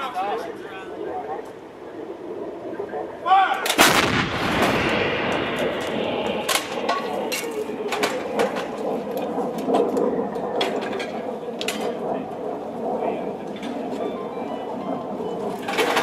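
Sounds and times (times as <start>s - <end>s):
sharp cracks: 3.6s - 12.6s
artillery gun blast with echo: 3.8s - 9.0s.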